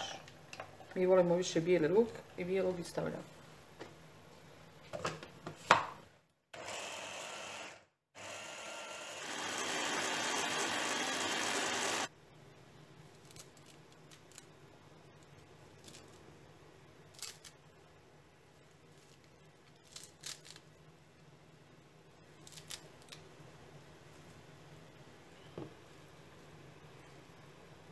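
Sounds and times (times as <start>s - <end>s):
electric chopper running: 6.6s - 12.1s.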